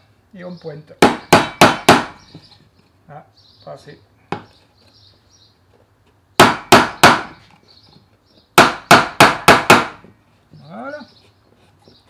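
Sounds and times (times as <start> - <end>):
hammer driving nails into wood: 1.0 - 2.2, 6.4 - 7.4, 8.6 - 10.0.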